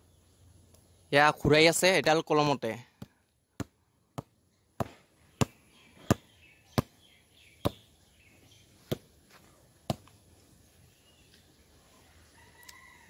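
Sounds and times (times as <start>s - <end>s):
hand slapping a football: 3.0s - 6.2s, 9.8s - 10.1s.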